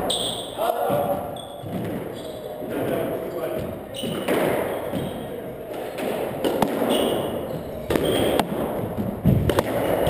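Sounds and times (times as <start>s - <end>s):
shoes squeaking on hardwood floor: 0.0s - 9.5s
squash ball knocks: 2.8s - 10.0s.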